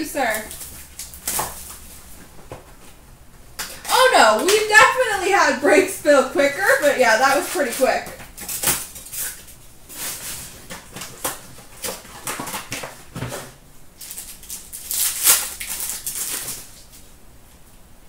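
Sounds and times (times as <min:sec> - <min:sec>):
card pack wrappers crinkling: 0:00.2 - 0:02.1, 0:14.0 - 0:17.0.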